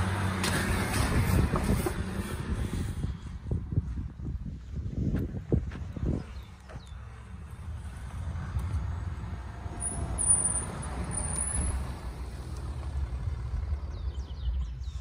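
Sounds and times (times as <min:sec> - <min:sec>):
vehicle driving past on dirt: 0:05.6 - 0:15.0.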